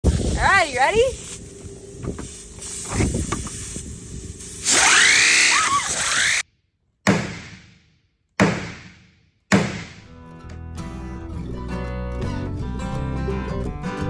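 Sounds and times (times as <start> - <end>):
loud wavering squeal: 4.6 - 6.4.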